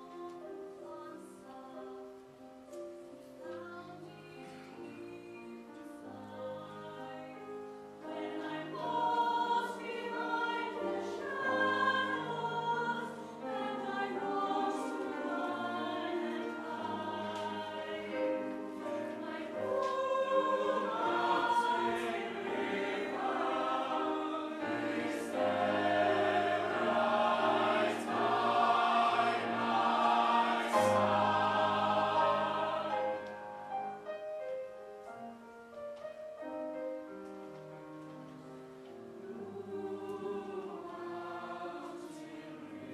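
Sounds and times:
piano accompaniment: 0.0s - 42.9s
choir singing: 4.0s - 33.9s, 39.2s - 42.9s.

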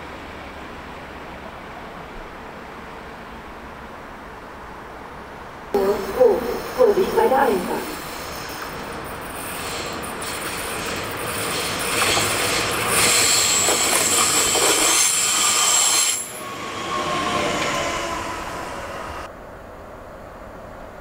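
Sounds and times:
electric train passing: 0.0s - 20.9s
high-pitched wheel squeal: 8.0s - 19.3s.

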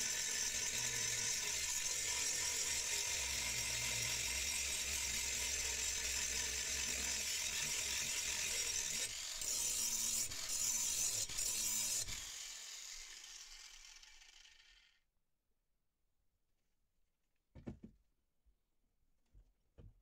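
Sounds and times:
angle grinder grinding steel: 0.0s - 15.0s.

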